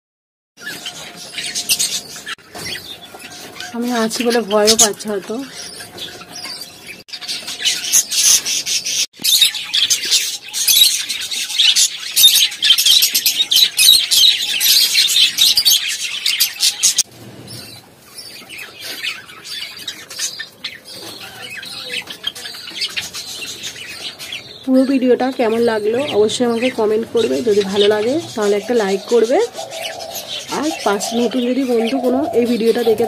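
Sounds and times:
budgerigars chattering and chirping: 0:00.6 - 0:33.0.

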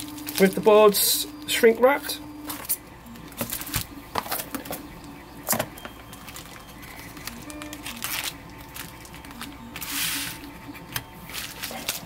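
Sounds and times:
plastic wrap crinkling: 0:00.0 - 0:00.9, 0:06.1 - 0:10.5, 0:11.3 - 0:12.0.

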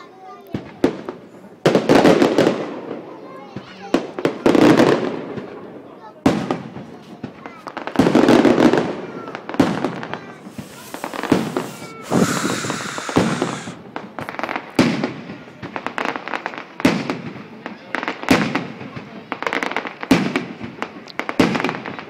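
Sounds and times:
firework shells booming: 0:10.4 - 0:13.8
hissing crackle: 0:10.4 - 0:13.8.

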